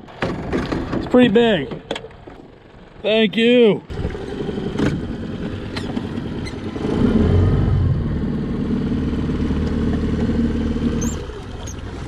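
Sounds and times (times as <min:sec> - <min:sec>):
outboard motor running: 0:03.9 - 0:07.4.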